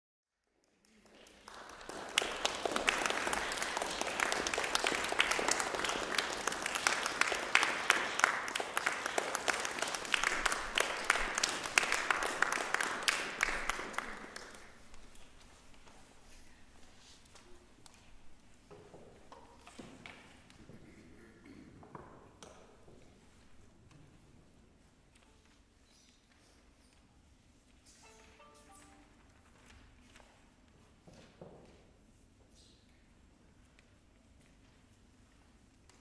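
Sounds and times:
audience applauding: 0:00.6 - 0:14.9.

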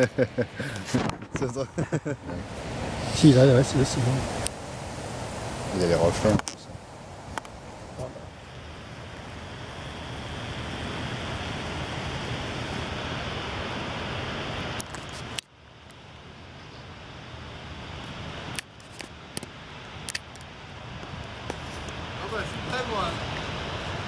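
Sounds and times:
steady rushing noise: 0:00.0 - 0:24.0
sharp light clicks: 0:18.5 - 0:20.5.

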